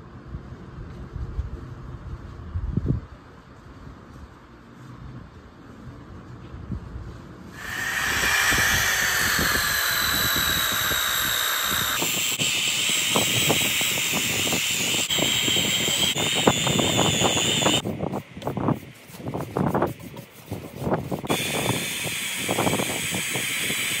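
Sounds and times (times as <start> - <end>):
orbital sander whining: 7.6 - 17.8, 21.3 - 24.0
sander pad scratching wood: 7.6 - 24.0.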